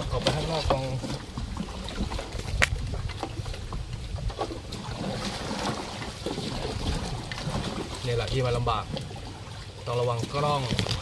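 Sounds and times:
water sloshing: 0.0 - 11.0.

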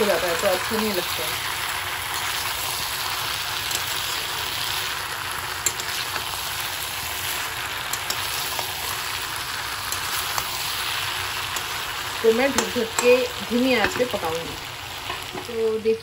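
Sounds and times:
vegetables sizzling in oil: 0.0 - 16.0
spatula clicking against pan: 7.9 - 8.3, 12.5 - 13.2.

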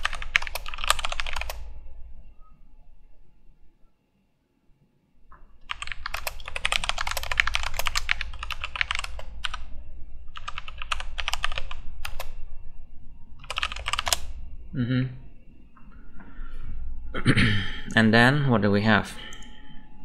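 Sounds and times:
fast typing on keyboard: 0.0 - 1.6, 5.6 - 9.7, 10.3 - 12.4, 13.4 - 14.3.

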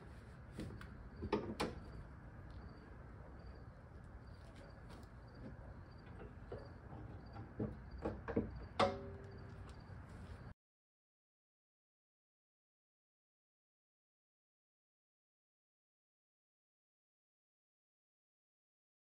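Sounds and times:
metal clicks and knocks: 6.1 - 9.5.

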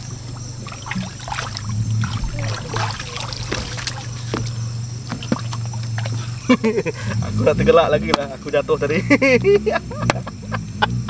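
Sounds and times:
water trickling and splashing: 0.0 - 6.7
steady low hum: 0.0 - 11.0.

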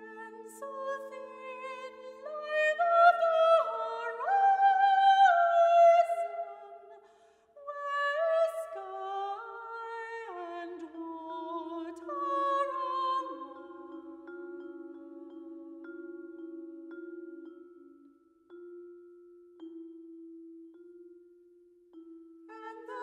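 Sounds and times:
women singing classical: 0.0 - 7.0, 7.6 - 16.0, 22.5 - 23.0.

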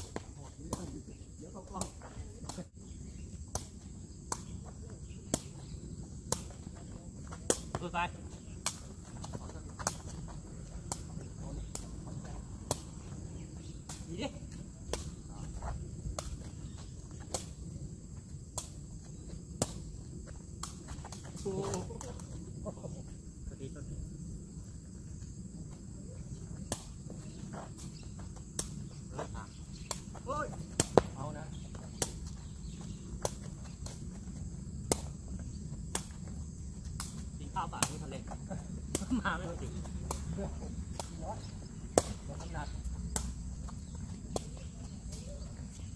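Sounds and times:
ball being kicked: 29.9 - 34.0.

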